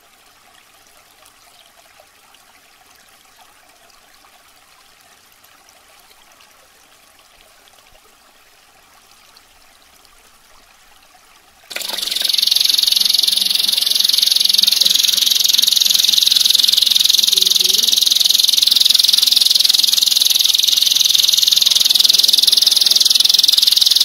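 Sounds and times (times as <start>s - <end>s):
trickle of running water: 0.0s - 24.0s
canary singing trills: 11.7s - 24.0s.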